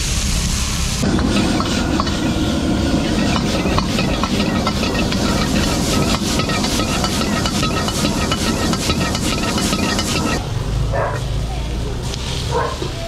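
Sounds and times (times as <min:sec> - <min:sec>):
gas burner rushing: 0:00.0 - 0:10.5
food sizzling in a wok: 0:00.0 - 0:13.0
metal ladle scraping a wok: 0:01.0 - 0:10.4.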